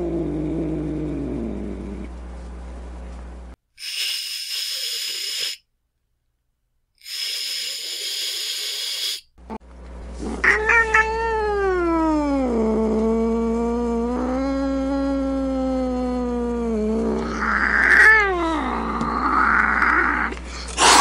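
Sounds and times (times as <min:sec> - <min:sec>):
cat hissing: 0:03.8 - 0:05.6, 0:07.0 - 0:09.3, 0:10.2 - 0:11.2, 0:17.2 - 0:21.0
cat yowling: 0:10.4 - 0:12.6, 0:17.2 - 0:20.3.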